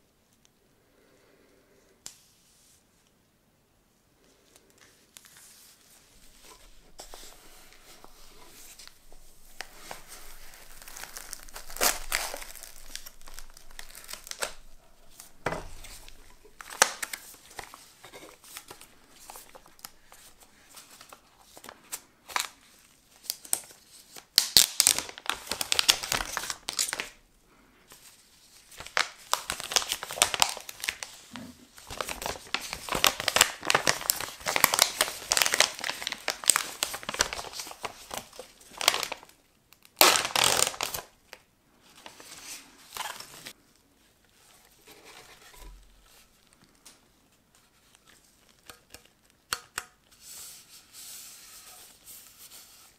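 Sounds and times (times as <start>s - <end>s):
plastic film crinkling and tearing: 4.8s - 27.2s, 28.0s - 41.4s, 42.0s - 43.6s.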